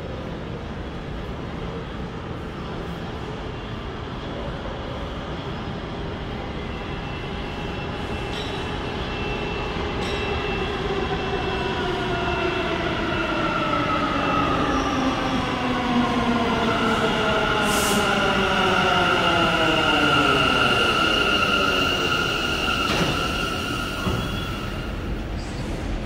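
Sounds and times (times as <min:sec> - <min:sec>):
subway train pulling in: 0:00.0 - 0:26.0
high squeal: 0:19.8 - 0:25.6.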